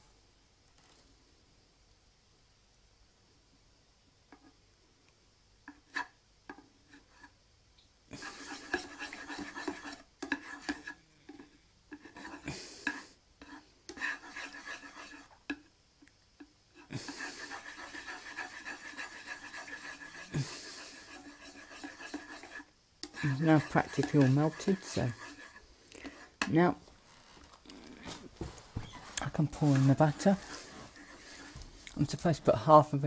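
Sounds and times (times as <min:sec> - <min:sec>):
utensil scraping frying pan: 0:05.7 - 0:07.3, 0:08.2 - 0:15.6, 0:16.8 - 0:27.4, 0:28.8 - 0:32.6.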